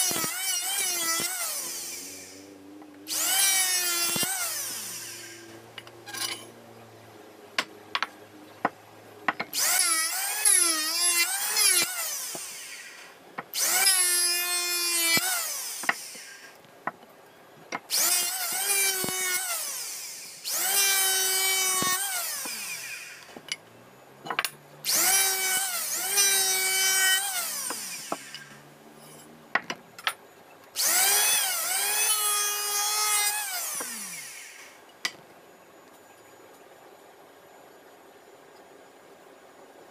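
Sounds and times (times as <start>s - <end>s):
electric planer shaving wood: 3.1s - 6.4s, 17.9s - 23.3s, 24.9s - 28.7s.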